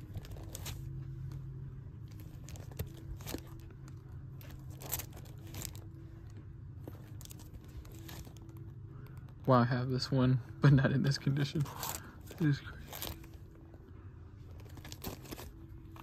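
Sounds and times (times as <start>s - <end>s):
plastic bags rustling and crinkling: 0.0s - 1.0s, 2.0s - 6.0s, 6.8s - 8.6s, 11.6s - 13.4s, 14.6s - 16.0s
low steady hum: 0.0s - 16.0s.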